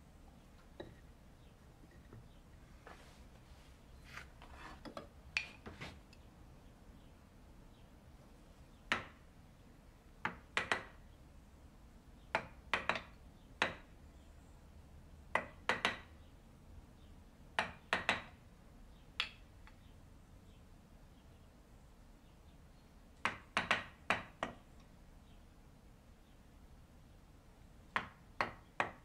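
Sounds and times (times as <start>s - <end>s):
mallet striking chisel into wood: 8.9s - 9.2s.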